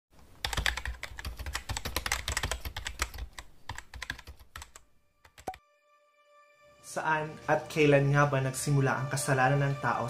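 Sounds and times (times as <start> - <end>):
keyboard typing: 0.4 - 5.6.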